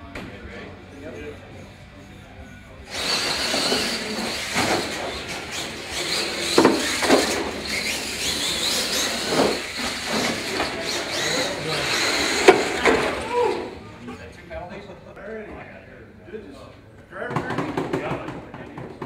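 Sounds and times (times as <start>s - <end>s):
toy truck motor whine: 1.1s - 13.7s.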